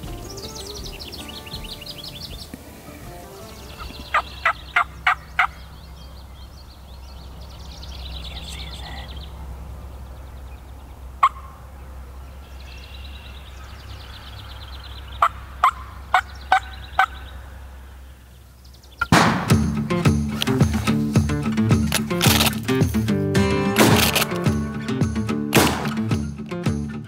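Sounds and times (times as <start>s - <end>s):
turkey calling sharp notes: 0.0s - 6.4s, 10.4s - 12.0s, 14.4s - 17.5s.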